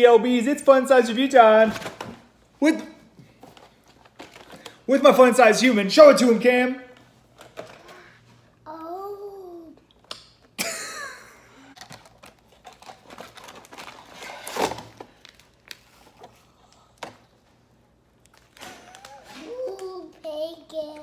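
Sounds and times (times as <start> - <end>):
plastic packaging rustling: 3.3 - 4.9, 11.7 - 17.4
young child's voice: 7.9 - 9.9, 19.0 - 21.0
packaging crackle: 11.8 - 16.3.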